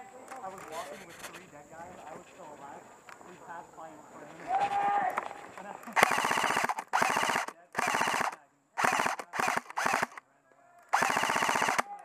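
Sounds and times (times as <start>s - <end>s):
airsoft rifle automatic bursts: 5.8s - 10.2s, 10.9s - 12.0s.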